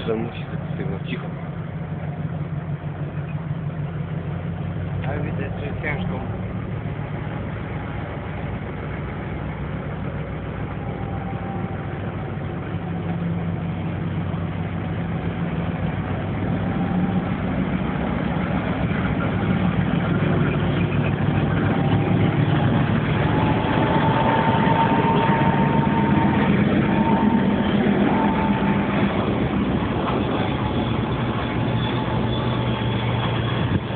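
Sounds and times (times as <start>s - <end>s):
diesel locomotive engine under load: 0.0s - 33.9s
thin whine: 0.0s - 33.9s.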